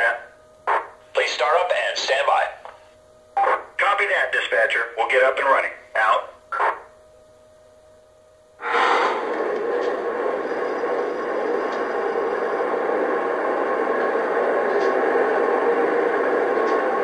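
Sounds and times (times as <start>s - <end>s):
diesel engine drone from speaker: 8.6s - 17.0s.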